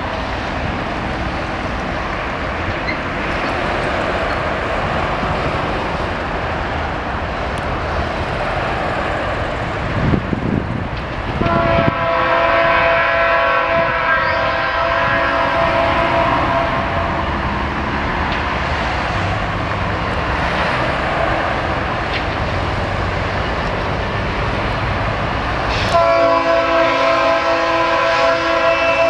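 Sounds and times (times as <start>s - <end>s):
locomotive engine rumbling: 0.0s - 29.0s
train air horn chord: 11.4s - 17.2s, 25.9s - 29.0s.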